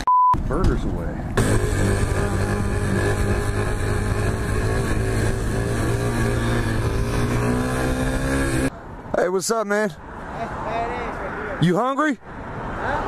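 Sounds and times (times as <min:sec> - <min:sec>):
dirt bike engine running: 0:01.4 - 0:08.7.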